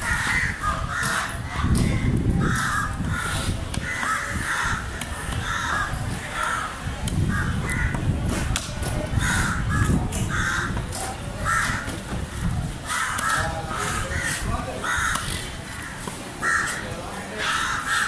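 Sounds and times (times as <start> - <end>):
crows cawing: 0.0 - 8.0, 9.2 - 10.8, 11.4 - 18.0.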